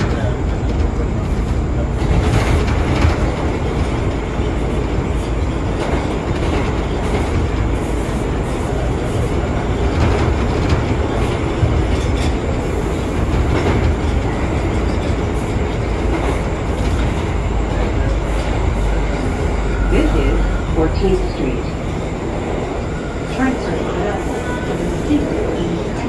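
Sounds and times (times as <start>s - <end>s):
subway train rumble: 0.0s - 26.0s.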